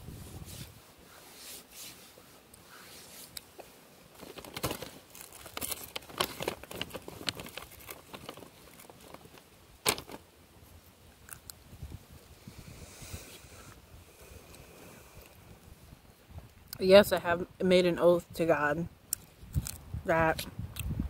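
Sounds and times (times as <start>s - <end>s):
crunching chewing: 11.2s - 11.6s.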